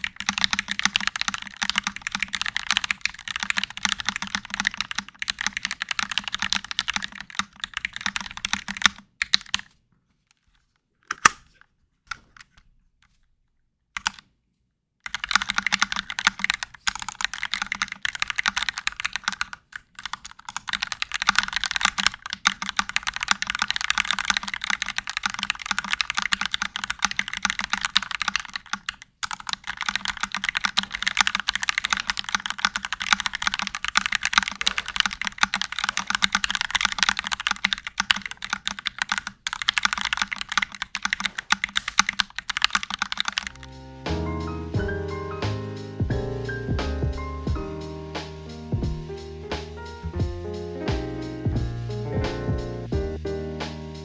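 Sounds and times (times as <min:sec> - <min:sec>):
mechanical keyboard typing: 0:00.0 - 0:09.7, 0:14.0 - 0:14.2, 0:15.0 - 0:43.7.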